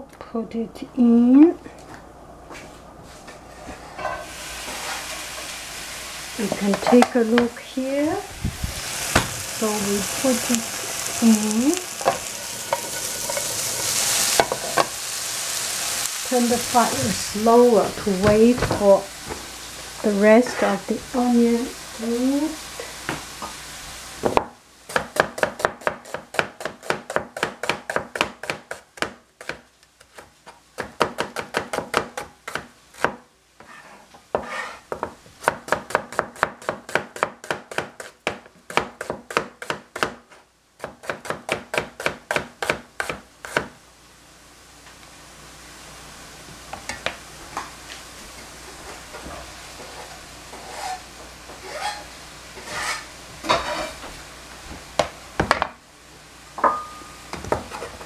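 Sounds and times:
onions sizzling in a pan: 3.3 - 58.0
cleaver chopping onion on board: 24.3 - 33.2, 34.3 - 43.7.

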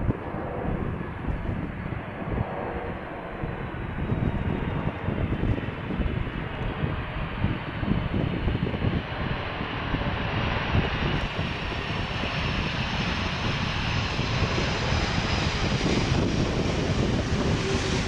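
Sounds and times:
jet roar with deep rumble: 0.0 - 18.0
hissing jet whine: 9.8 - 18.0.

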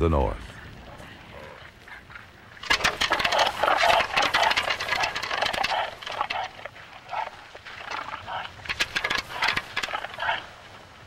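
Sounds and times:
antlers clattering together: 2.6 - 10.6.

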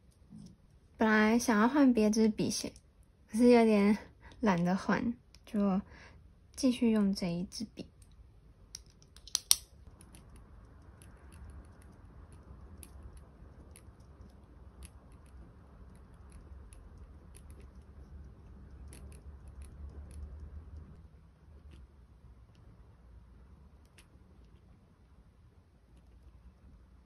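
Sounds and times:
sharp clicks: 8.0 - 9.8.

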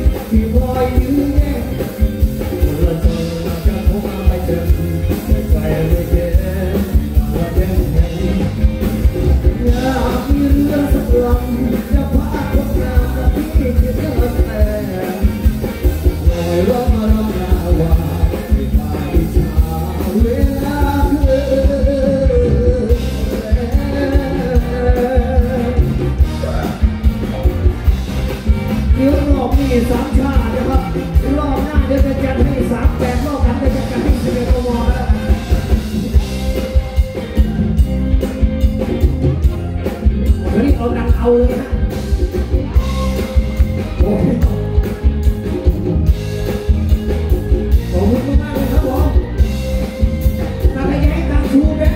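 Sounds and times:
man singing into microphone: 0.0 - 27.0, 28.9 - 36.8, 40.3 - 42.0, 42.6 - 44.8, 50.6 - 51.9
drum beat: 0.0 - 51.9
electric guitar: 0.0 - 51.9
live band playing: 0.0 - 51.9.

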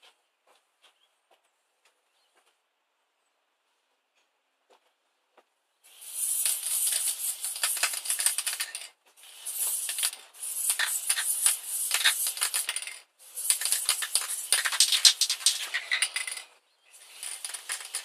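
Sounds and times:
spray-paint can hissing: 5.9 - 16.4, 17.0 - 18.0.

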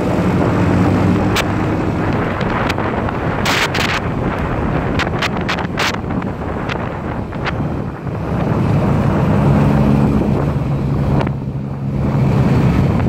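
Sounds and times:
motorcycle engine humming: 0.0 - 13.0
wind buffeting microphone: 0.0 - 13.0.

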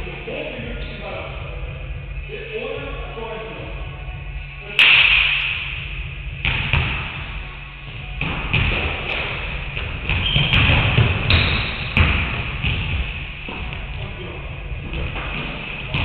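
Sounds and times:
basketballs bouncing on wooden floor: 6.4 - 7.1, 8.2 - 16.0.

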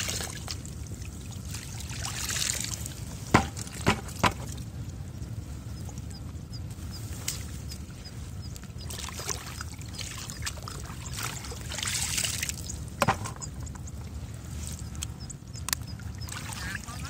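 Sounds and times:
muddy water pouring and trickling: 0.0 - 17.0
sharp knocks: 3.3 - 4.4, 13.0 - 13.5.

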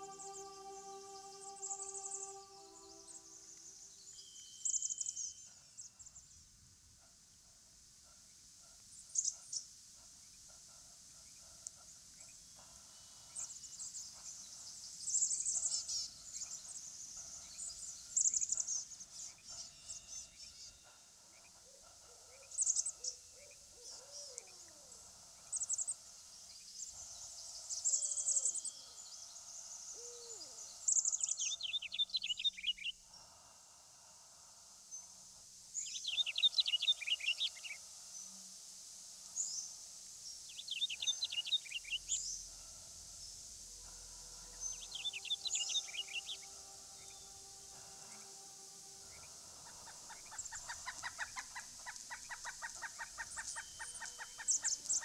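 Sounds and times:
high thin bird song: 0.0 - 6.2, 25.4 - 33.0, 35.8 - 37.8, 40.4 - 42.6, 44.5 - 55.0
low arched bird calls: 43.8 - 55.0.

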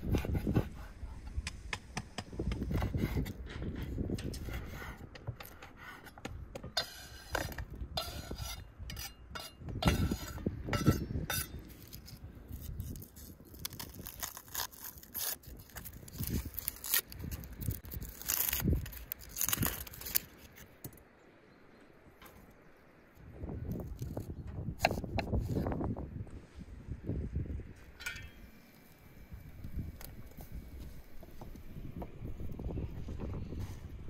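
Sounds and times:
knife peeling onion skin: 11.6 - 20.6.

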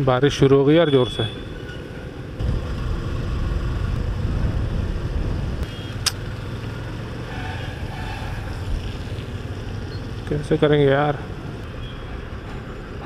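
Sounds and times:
wind rumble on microphone: 2.4 - 5.7
motorbike riding on wet road: 2.4 - 10.6.

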